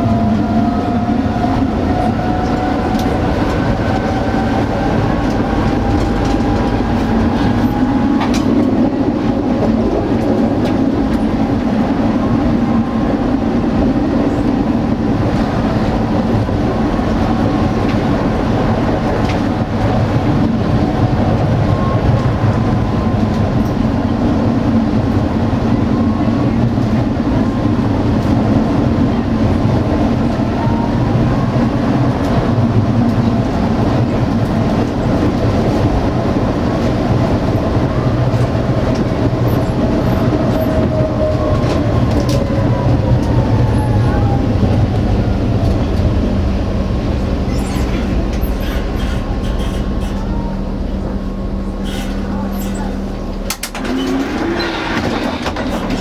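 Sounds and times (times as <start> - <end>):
tram wheels rumbling on rail: 0.0 - 56.0
tram whine: 0.0 - 56.0
sharp clicks from rails: 0.8 - 11.9, 15.2 - 20.5, 32.0 - 43.9, 51.9 - 56.0.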